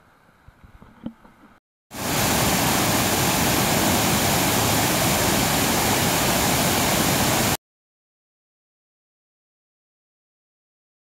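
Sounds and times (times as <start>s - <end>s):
water rushing over weir: 1.9s - 7.6s.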